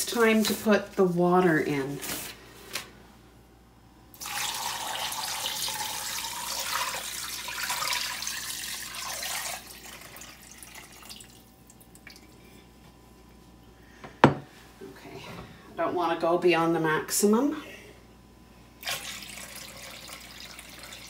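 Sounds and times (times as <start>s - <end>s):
water pouring into metal pot: 4.2s - 11.4s, 18.8s - 21.0s.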